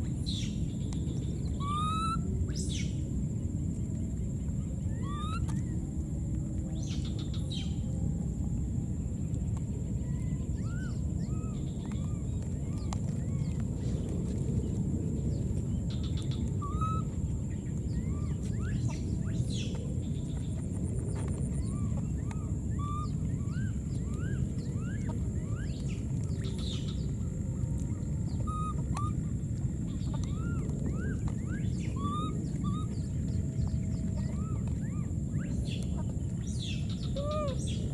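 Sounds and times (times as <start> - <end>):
low rumble of noise: 0.0 - 37.9.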